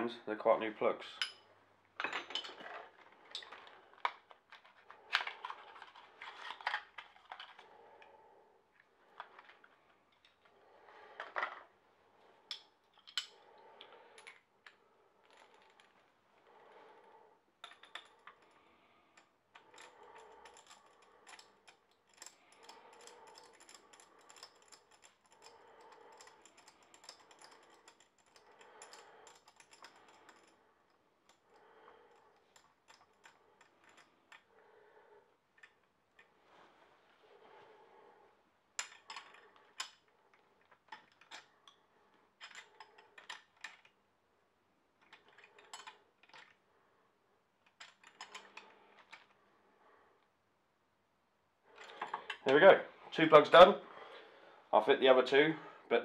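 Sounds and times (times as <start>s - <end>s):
metallic clicks of hand tools: 19.2s - 30.6s.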